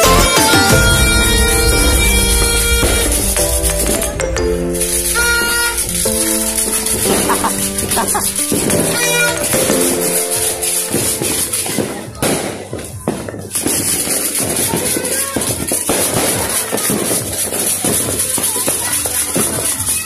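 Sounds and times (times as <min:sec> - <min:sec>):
music playing: 0:00.0 - 0:14.6
firecrackers crackling: 0:00.0 - 0:20.0.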